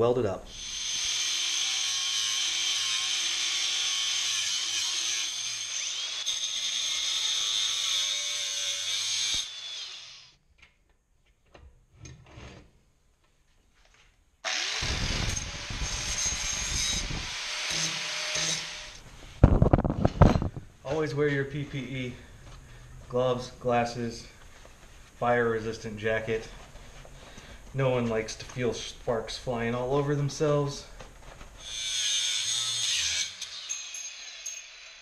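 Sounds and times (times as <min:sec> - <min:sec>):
angle grinder cutting steel: 0:00.5 - 0:10.3, 0:14.4 - 0:19.0, 0:31.6 - 0:35.0.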